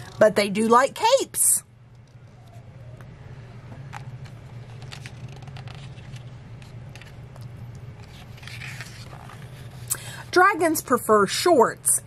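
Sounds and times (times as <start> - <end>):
steady low hum: 0.0 - 12.0
book pages rustling: 3.9 - 9.9
faint clicks and scrapes: 3.9 - 9.9.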